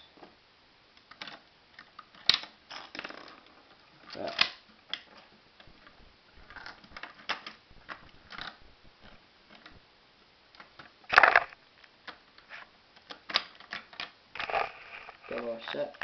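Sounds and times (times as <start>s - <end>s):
plastic bricks clicking and knocking: 10.6s - 12.2s, 13.0s - 16.0s.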